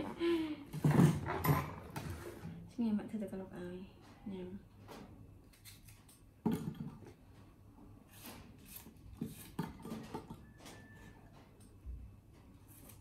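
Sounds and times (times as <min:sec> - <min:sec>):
dishes and utensils clattering: 0:00.8 - 0:02.2.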